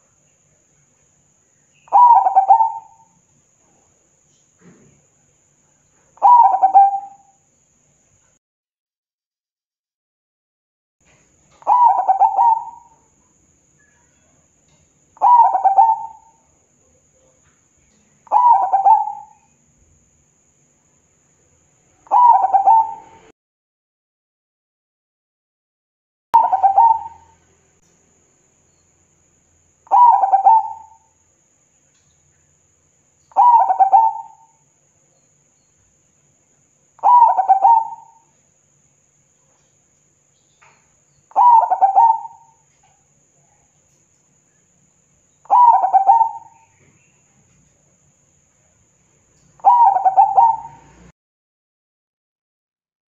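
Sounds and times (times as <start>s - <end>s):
dove cooing: 1.9s - 3.0s, 6.2s - 7.3s, 11.6s - 13.1s, 15.2s - 16.4s, 18.3s - 19.4s, 22.0s - 23.3s, 26.4s - 27.4s, 29.9s - 31.1s, 33.3s - 34.5s, 37.0s - 38.3s, 41.3s - 42.6s, 45.5s - 46.8s, 49.6s - 51.1s.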